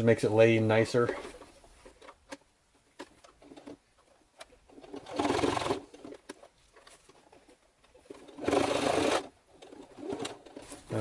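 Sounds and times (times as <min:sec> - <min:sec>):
sewing machine stitching leather: 0:03.0 - 0:11.0.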